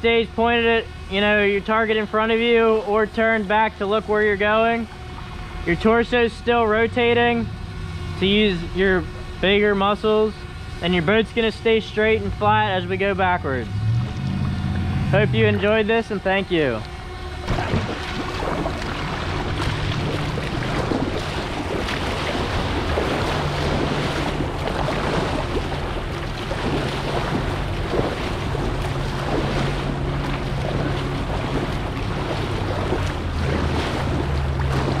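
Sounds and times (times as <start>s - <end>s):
wind buffeting microphone: 12.3s - 35.0s
river rushing and splashing: 17.4s - 35.0s.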